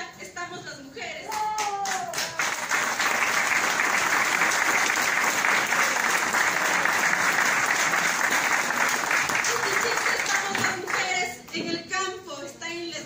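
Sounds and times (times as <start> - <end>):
audience applause: 1.6 - 11.1.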